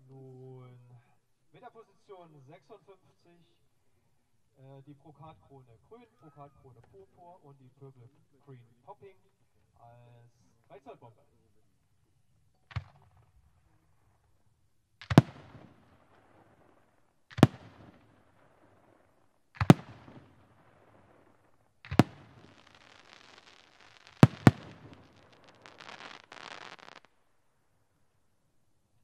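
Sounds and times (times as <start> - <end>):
fireworks bangs: 15.0 - 27.1
crackle of popping stars: 21.9 - 27.1.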